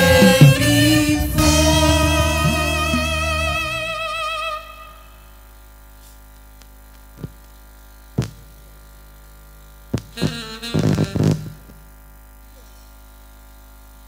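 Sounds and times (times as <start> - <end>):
live music held note: 0.0 - 5.3
steady electrical hum: 0.0 - 14.0
sharp knocks and thumps: 8.2 - 8.5.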